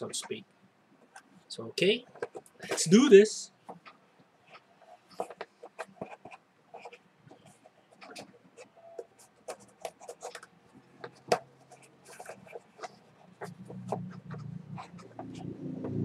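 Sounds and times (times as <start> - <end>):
cardboard scrapes and rustles: 4.9 - 15.4.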